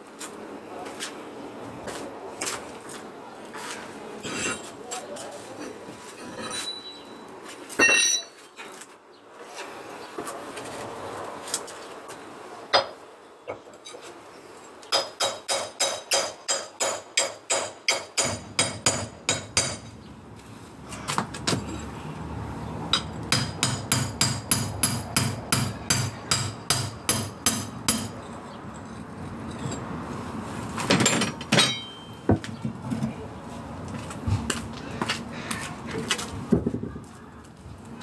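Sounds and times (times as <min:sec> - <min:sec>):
hammer striking chisel into concrete: 0:14.9 - 0:19.8, 0:22.9 - 0:28.2.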